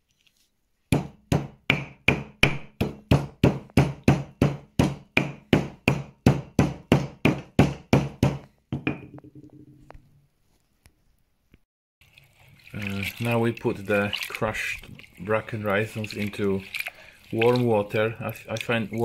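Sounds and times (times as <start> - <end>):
stone pounding on stone mortar: 0.9 - 9.4
ringing stone knock: 8.7 - 9.8.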